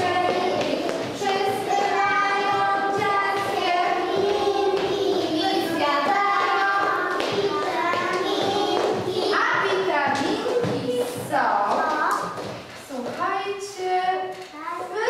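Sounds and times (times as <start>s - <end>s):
young children singing: 0.0s - 11.2s.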